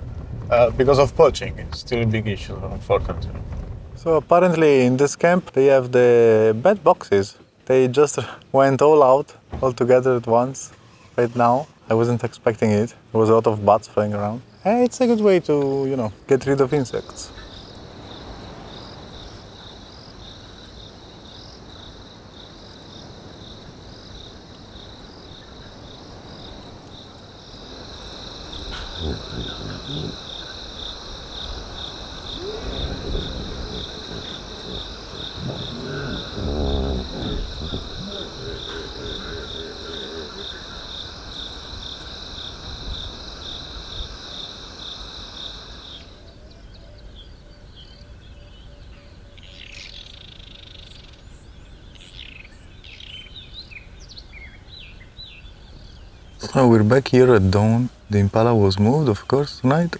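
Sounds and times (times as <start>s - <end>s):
crickets trilling: 0.0s - 59.9s
bird chirps: 45.9s - 56.5s.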